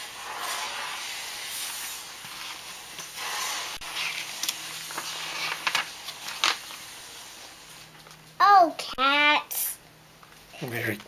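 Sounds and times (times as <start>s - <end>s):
steady hiss: 0.0s - 8.0s
book pages rustling: 3.8s - 6.8s.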